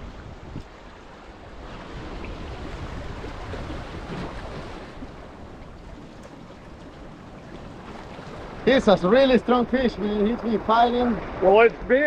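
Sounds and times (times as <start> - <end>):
wind noise on microphone: 0.0 - 5.2.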